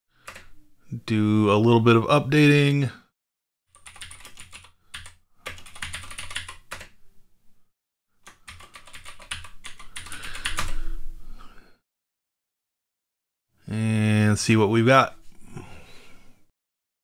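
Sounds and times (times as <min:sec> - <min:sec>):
typing on computer keyboard: 0:03.7 - 0:07.0, 0:08.2 - 0:10.8.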